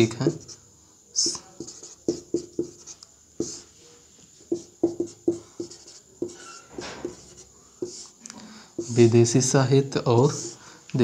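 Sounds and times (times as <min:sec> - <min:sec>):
marker squeaking on whiteboard: 0:00.2 - 0:00.6, 0:01.2 - 0:03.7, 0:04.4 - 0:08.2, 0:08.8 - 0:09.4, 0:10.2 - 0:10.6.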